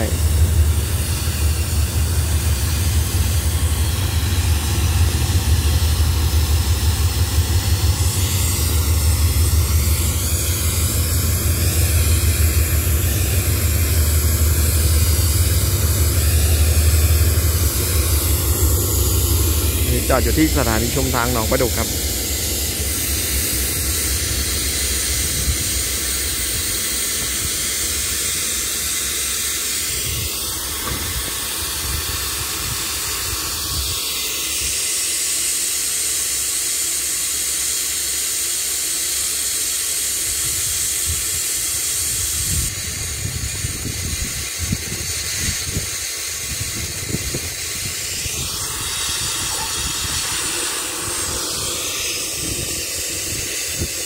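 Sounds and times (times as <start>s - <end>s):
locomotive engine running: 0.0s - 54.0s
steady hiss: 0.0s - 54.0s.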